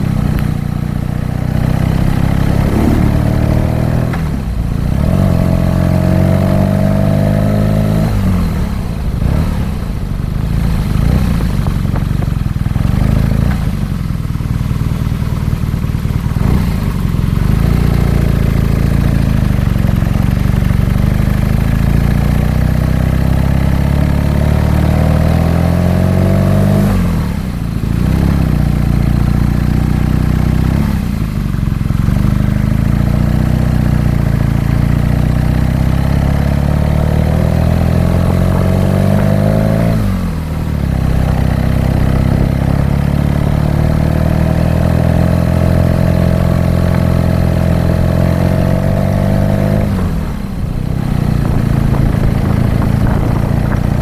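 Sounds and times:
motorcycle engine accelerating: 0.0s - 54.0s.

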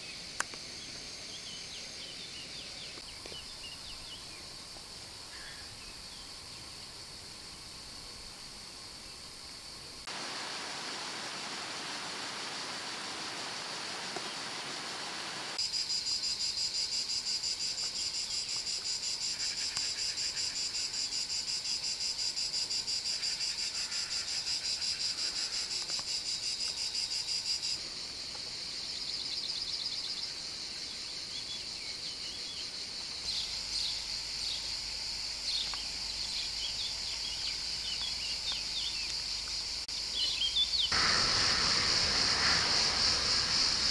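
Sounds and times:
steady hiss: 0.0s - 29.4s, 30.0s - 43.9s
insects shrilling chorus: 40.0s - 43.9s.

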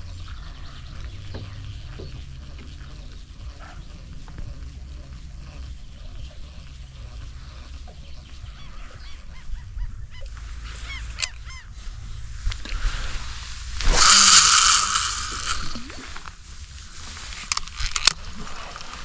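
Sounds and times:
low steady rumble: 0.0s - 19.0s
waterbirds honking: 5.7s - 11.7s.

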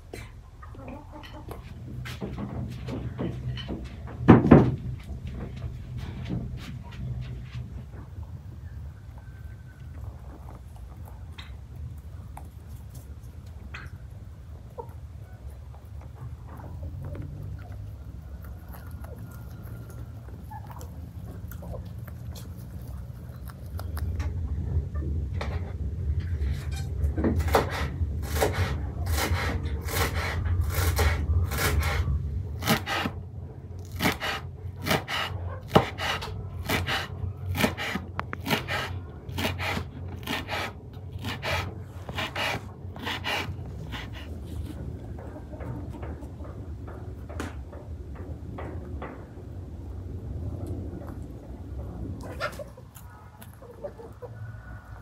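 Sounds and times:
low rumble: 0.0s - 32.6s, 40.8s - 55.0s
scraping strokes: 26.3s - 33.2s, 33.9s - 45.0s.

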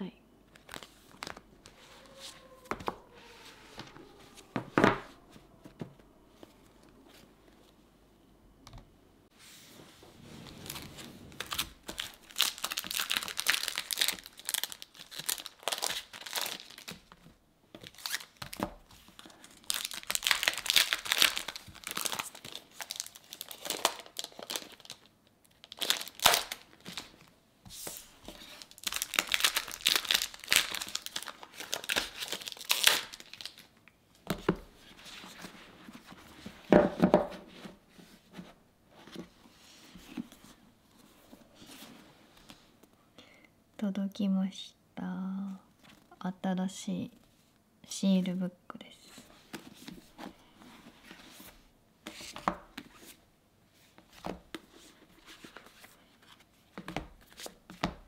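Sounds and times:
paper packs crinkling and rustling: 0.5s - 4.5s, 10.6s - 27.3s, 27.9s - 36.7s.

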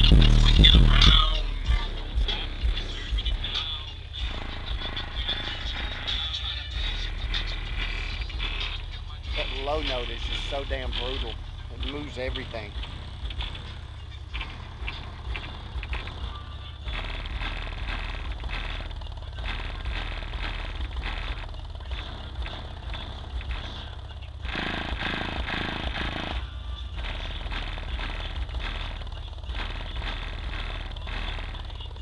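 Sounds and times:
rap music with deep bass: 0.0s - 32.0s.

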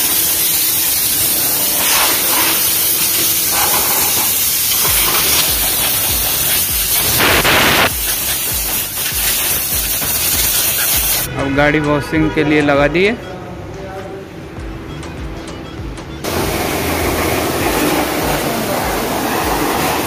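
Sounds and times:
compressed air blow gun hissing: 0.0s - 11.3s.

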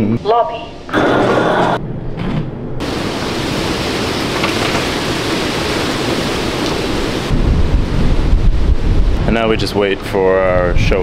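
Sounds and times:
storm wind and rain: 2.8s - 11.0s
wind buffeting microphone: 2.8s - 11.0s.

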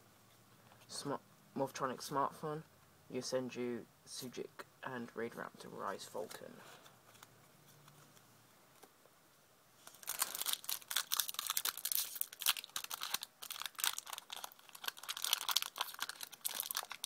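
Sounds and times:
foil wrapper crinkling and tearing: 9.8s - 17.0s.

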